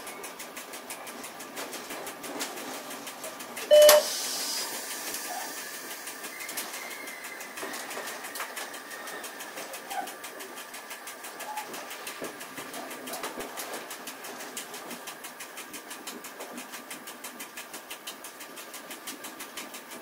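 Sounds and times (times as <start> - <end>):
faint regular ticking: 0.0 - 20.0
train cab running noise: 0.0 - 20.0
short loud tone: 3.7 - 4.1
brief air hiss: 3.9 - 8.0.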